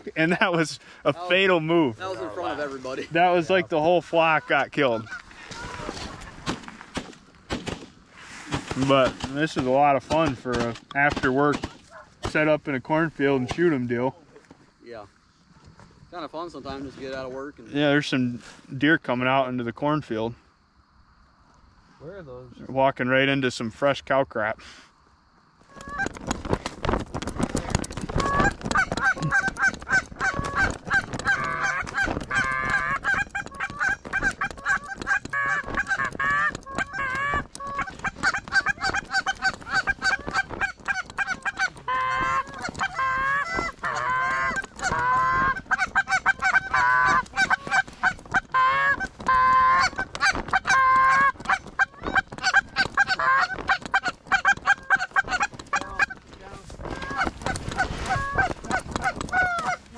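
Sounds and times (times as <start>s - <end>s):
goose honks and clucks: 4.4s - 5.9s, 25.7s - 26.3s, 28.1s - 56.2s, 56.8s - 59.9s.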